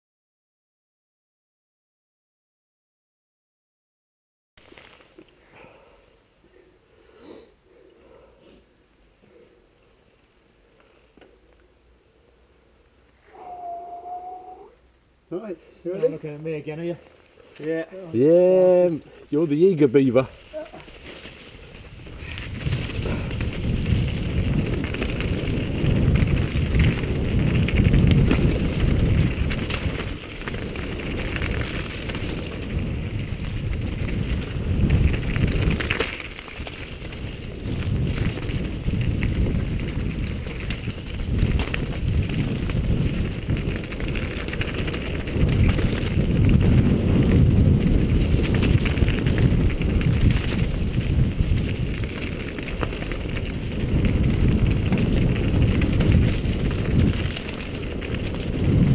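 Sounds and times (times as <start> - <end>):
bike tyres rolling on dirt trail: 4.6 - 8.3, 9.1 - 14.7, 15.4 - 58.9
wind buffeting microphone: 21.5 - 58.9
bike knocks and rattles: 34.0 - 58.9.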